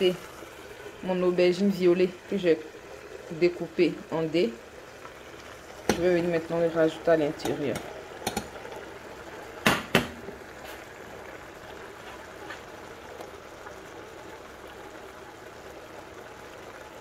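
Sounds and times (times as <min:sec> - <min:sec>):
sauce sizzling and bubbling in pot: 0:00.0 - 0:17.0
sharp knocks: 0:09.6 - 0:10.2.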